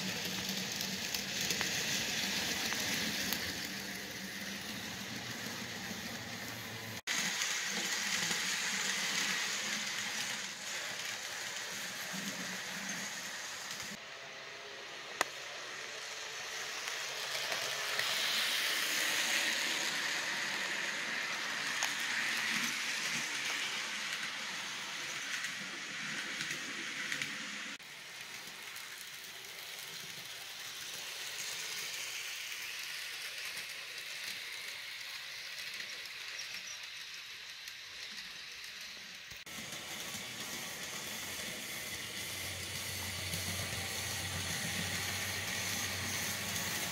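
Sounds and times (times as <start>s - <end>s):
model train whirring: 0.0s - 46.9s.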